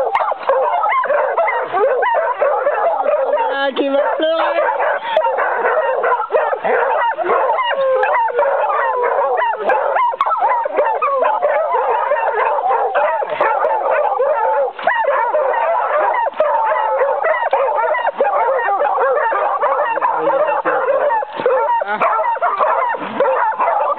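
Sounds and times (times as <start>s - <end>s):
hounds baying and yelping: 0.0s - 23.9s.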